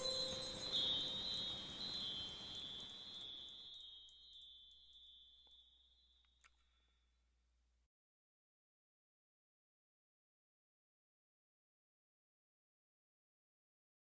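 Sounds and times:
bell-like chime music: 0.0 - 6.4.

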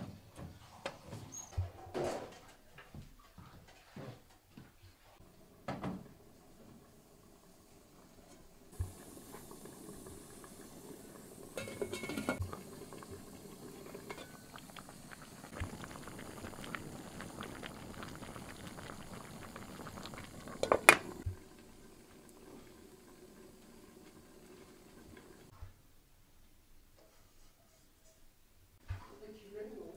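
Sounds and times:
pot boiling and bubbling: 5.0 - 25.5.

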